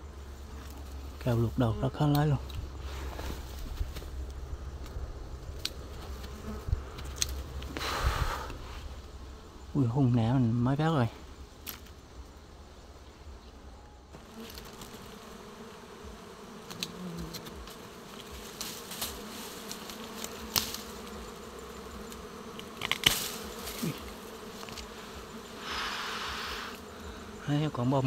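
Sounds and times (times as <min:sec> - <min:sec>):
bees buzzing: 0:00.0 - 0:28.0
leaves rustling: 0:00.0 - 0:28.0.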